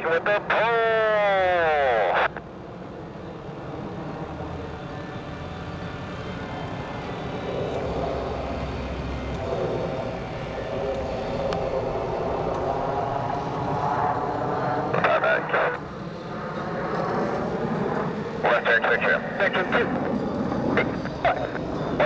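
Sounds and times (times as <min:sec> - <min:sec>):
jet engines passing overhead: 0:00.0 - 0:22.0.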